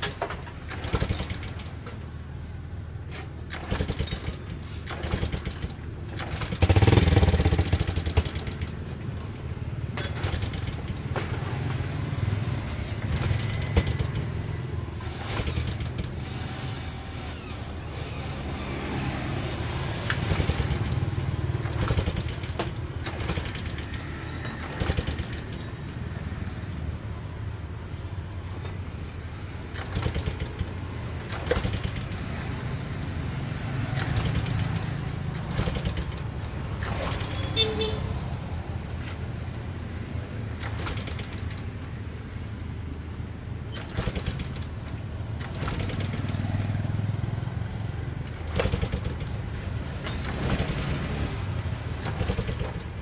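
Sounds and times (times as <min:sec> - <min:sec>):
motorcycle engine revving: 0:04.9 - 0:08.8, 0:18.4 - 0:25.6, 0:45.4 - 0:53.0.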